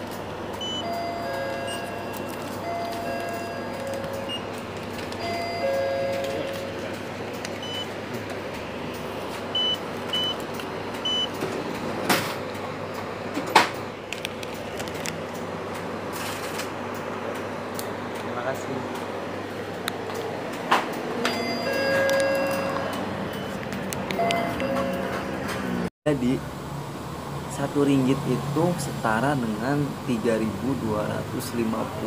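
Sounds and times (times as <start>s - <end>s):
store background hum: 0.0s - 32.0s
high electronic beeps: 0.6s - 4.5s, 7.6s - 7.9s, 9.6s - 10.4s.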